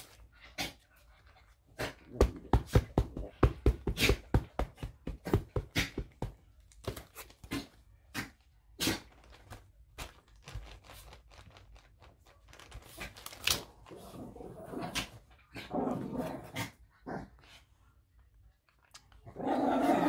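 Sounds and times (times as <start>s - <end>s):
paper rustling: 9.1s - 14.1s.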